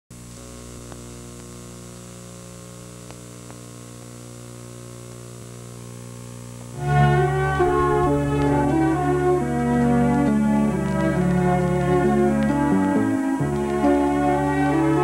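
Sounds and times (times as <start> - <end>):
electrical mains hum and buzz: 0.1 - 15.0.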